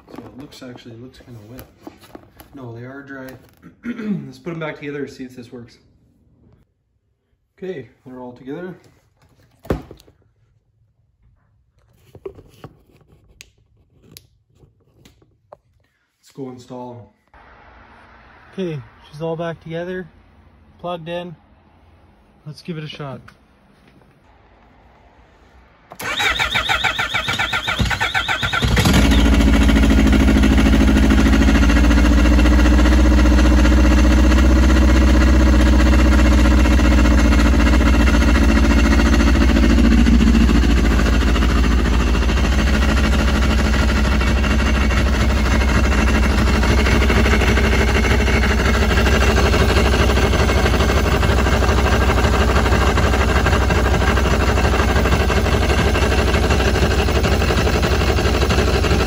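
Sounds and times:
electric starter cranking: 0:25.9 - 0:59.0
snowmobile engine idling: 0:28.6 - 0:59.0.

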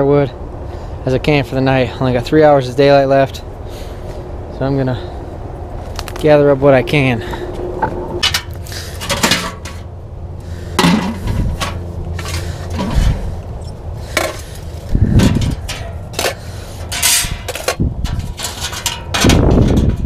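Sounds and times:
sheet metal clanking and scraping: 0:07.2 - 0:10.0, 0:10.7 - 0:13.3, 0:14.1 - 0:20.0.

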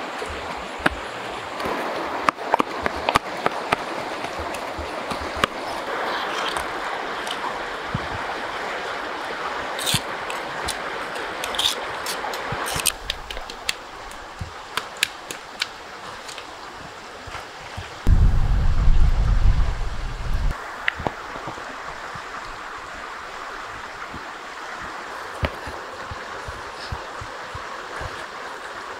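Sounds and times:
flowing river water: 0:00.0 - 0:28.9
campfire embers crackling: 0:09.8 - 0:16.5.

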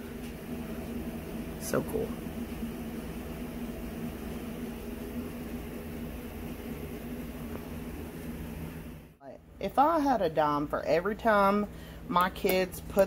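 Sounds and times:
machine hum: 0:00.0 - 0:09.8.

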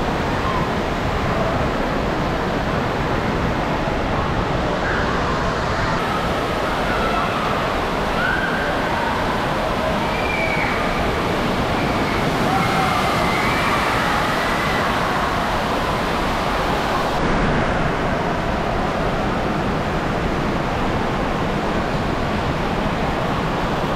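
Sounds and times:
water pouring and splashing: 0:06.0 - 0:19.5.

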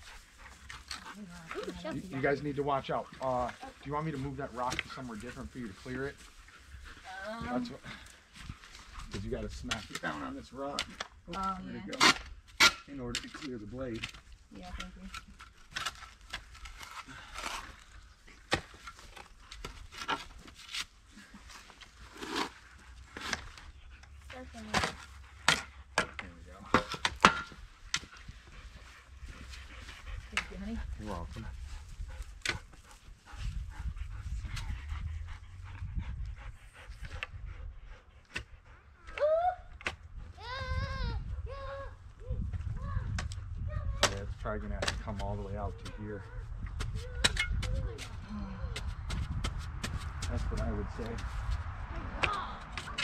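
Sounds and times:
shovel digging into earth: 0:21.5 - 0:23.7.

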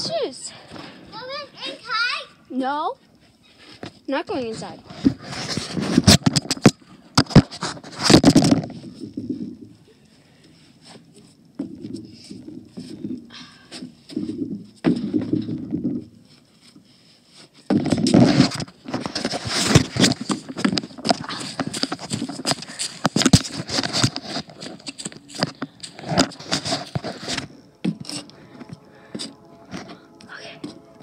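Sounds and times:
phone rustling and scraping: 0:03.3 - 0:09.7, 0:13.8 - 0:31.0.

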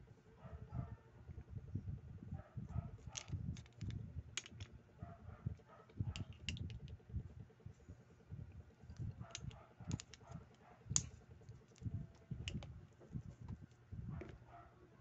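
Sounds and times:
small metal parts clicking: 0:03.1 - 0:04.7, 0:06.1 - 0:07.0, 0:09.0 - 0:12.7.

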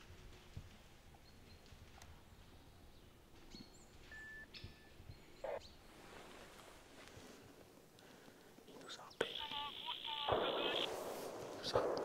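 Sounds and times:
faint high bird calls: 0:08.8 - 0:10.9.

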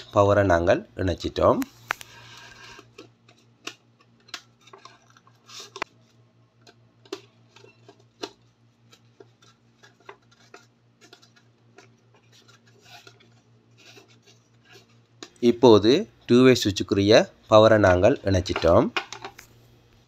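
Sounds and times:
rubbing of plastic and wire: 0:01.9 - 0:15.4.

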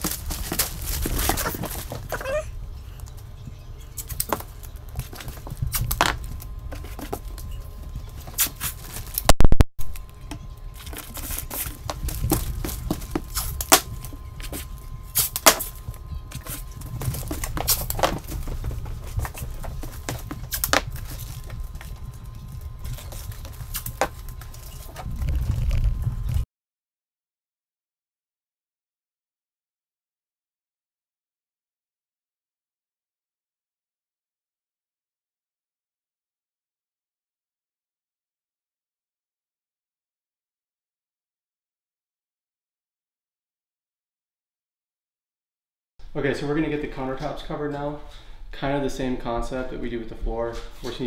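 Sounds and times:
underlayment crinkling: 0:00.0 - 0:02.5, 0:10.8 - 0:26.0
masking tape pulled and torn: 0:15.2 - 0:15.7.

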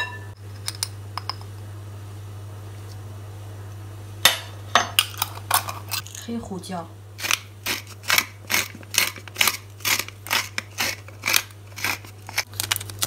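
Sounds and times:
pepper grinder crunching: 0:07.2 - 0:13.0.

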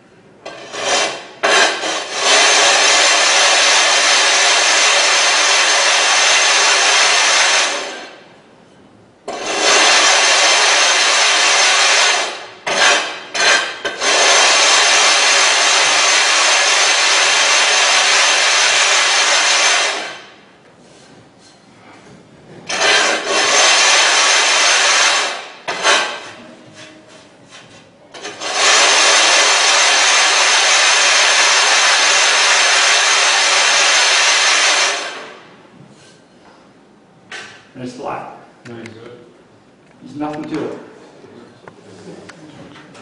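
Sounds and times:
sharpening stone gritty scraping: 0:00.4 - 0:02.9.

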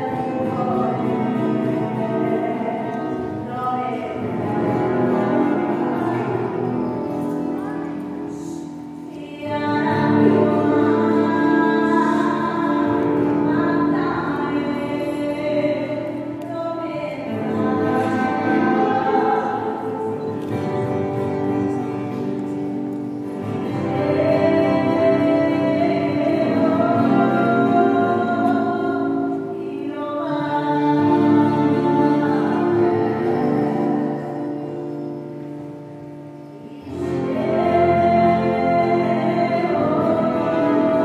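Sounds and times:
girls singing: 0:00.0 - 0:22.2, 0:23.2 - 0:35.6, 0:36.4 - 0:41.0
acoustic guitars: 0:00.0 - 0:41.0.

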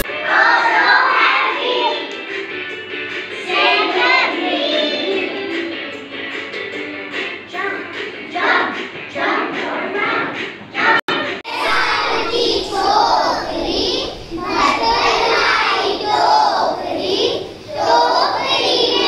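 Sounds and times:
children shouting and singing: 0:00.0 - 0:19.0
children chattering: 0:11.4 - 0:19.0.

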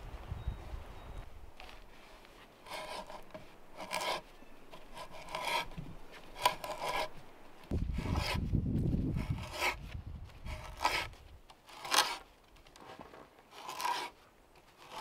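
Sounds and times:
hand auger rasping into wood: 0:01.9 - 0:12.3, 0:13.5 - 0:15.0.

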